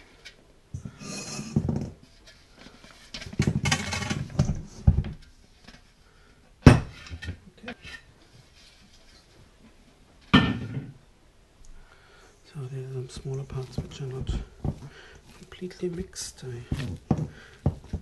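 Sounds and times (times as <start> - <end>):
metal and dough scraping: 0.0 - 6.0, 12.8 - 18.0
small knocks: 16.6 - 18.0.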